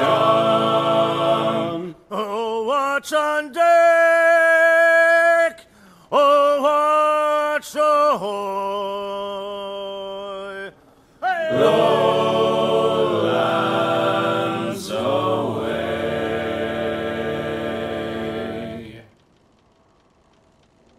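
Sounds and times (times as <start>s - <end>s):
voices singing in harmony: 0.0s - 3.2s, 8.2s - 19.1s.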